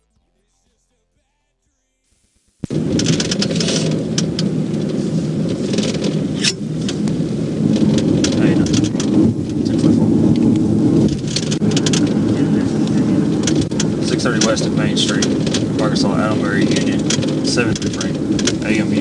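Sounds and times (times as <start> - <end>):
road and wind noise inside car: 2.7 - 19.0.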